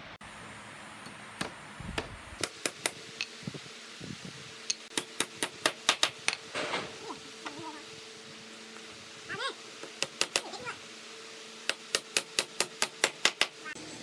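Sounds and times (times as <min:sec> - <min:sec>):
hammer striking a nail into wood: 0:04.9 - 0:06.4, 0:11.7 - 0:13.6.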